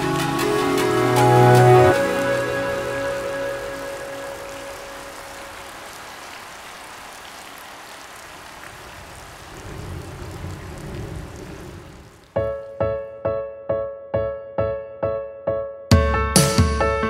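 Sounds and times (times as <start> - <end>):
wave breaking rumble: 8.7 - 12.3.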